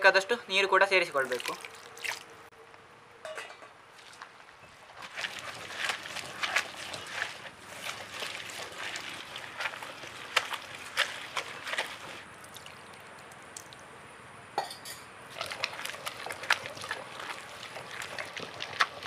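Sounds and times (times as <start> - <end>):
stone roller grinding wet paste: 5.0 - 12.3, 15.3 - 19.0.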